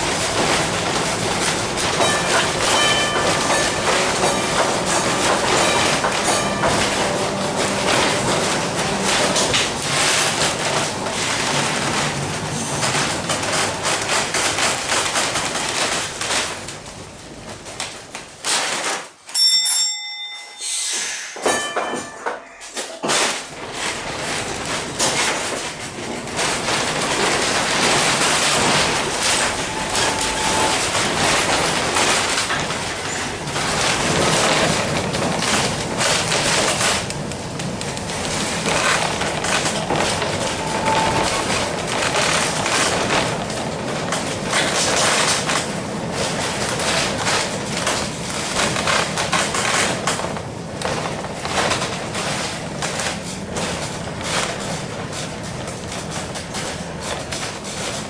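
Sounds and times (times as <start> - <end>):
streetcar bell ringing: 0.0 - 11.4, 19.3 - 24.5, 27.2 - 35.3, 39.5 - 46.6
streetcar rumbling on rails: 0.0 - 58.0
car body rattling: 23.1 - 58.0.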